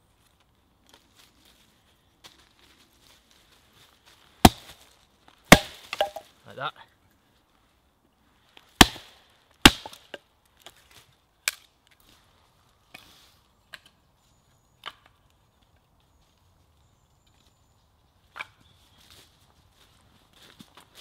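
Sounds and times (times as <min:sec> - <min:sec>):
hatchet chopping kindling: 0:04.4 - 0:04.8, 0:05.5 - 0:06.3, 0:08.8 - 0:10.2.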